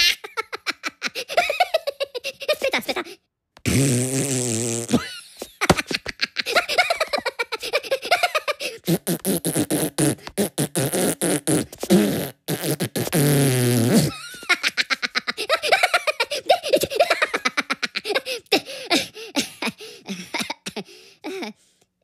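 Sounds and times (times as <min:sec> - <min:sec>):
high-pitched squeaky giggling: 0:00.0 - 0:03.2
cartoon fart noises: 0:03.6 - 0:05.9, 0:08.8 - 0:14.2.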